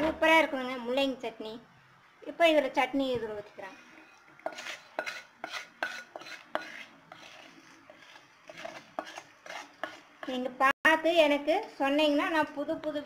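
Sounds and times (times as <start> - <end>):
metal spoon scraping a pan: 3.7 - 10.5.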